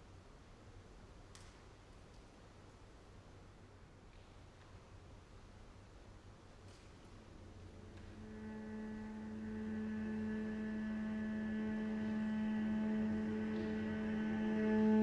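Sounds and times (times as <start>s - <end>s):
bowed cello drone: 6.7s - 15.0s.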